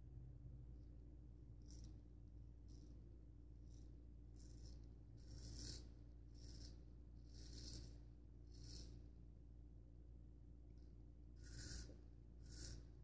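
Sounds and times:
low room hum: 0.0 - 13.0
razor scraping beard stubble: 3.6 - 9.0, 11.4 - 13.0.

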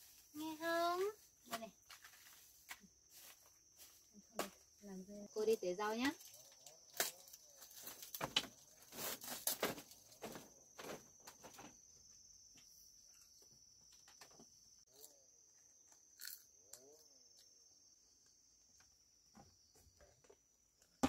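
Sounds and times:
footsteps on bamboo floor: 0.9 - 4.1.

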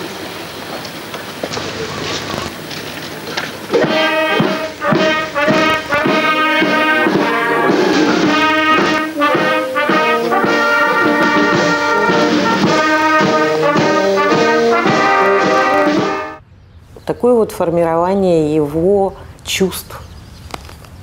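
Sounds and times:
brass band playing: 3.7 - 16.4.

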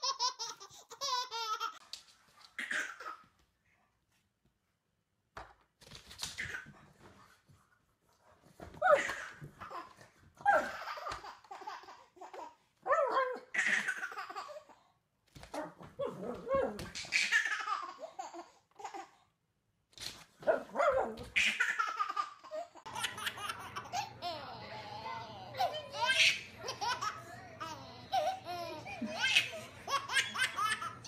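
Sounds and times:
baby laughing: 0.0 - 1.8, 2.6 - 3.3, 8.8 - 12.6, 13.4 - 14.8, 16.8 - 19.2, 21.4 - 31.0
dog barking: 20.4 - 21.2.

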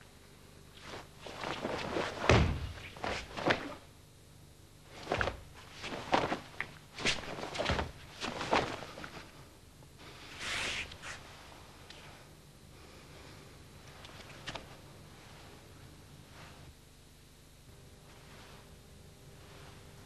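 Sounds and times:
bare feet thudding on mat: 0.8 - 3.9, 4.9 - 9.3
cloth uniform snapping: 0.8 - 3.9, 4.9 - 9.3, 14.0 - 14.8.

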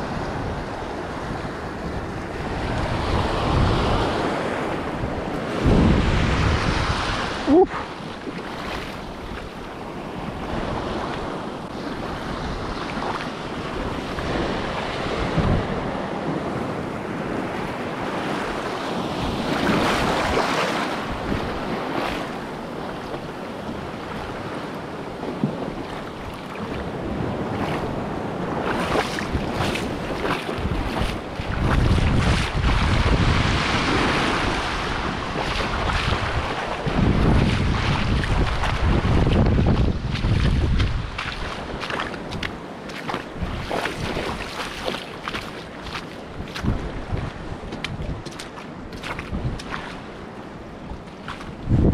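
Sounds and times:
wind buffeting microphone: 0.0 - 51.9
waves breaking over rocks: 1.1 - 51.9.

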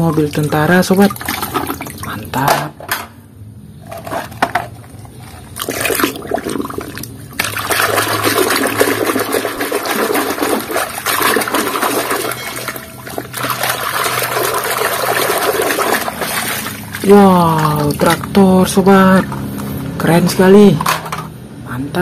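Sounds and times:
muddy water sloshing in a basin: 0.0 - 2.5, 4.8 - 19.5.

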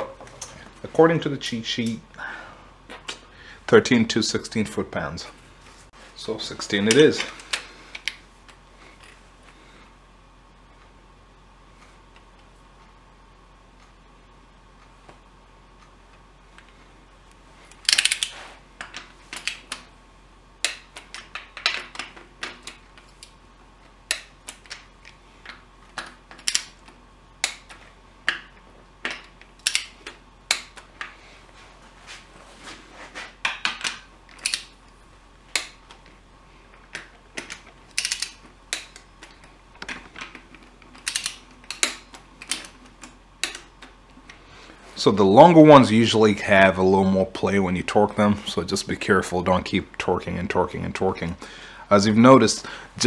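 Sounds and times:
ratchet and torque wrench clicking: 34.4 - 34.7, 37.4 - 39.1, 41.0 - 42.8.

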